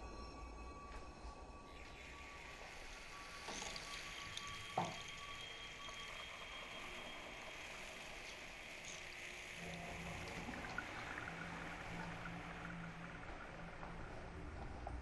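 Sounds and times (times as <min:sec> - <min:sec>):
steady hiss: 0:02.0 - 0:12.5
low hum: 0:09.6 - 0:15.0.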